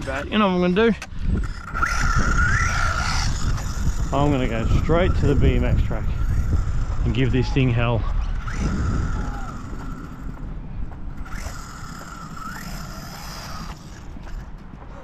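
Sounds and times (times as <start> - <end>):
rc car motor whining: 0.0 - 14.6
low rumble: 1.1 - 15.0.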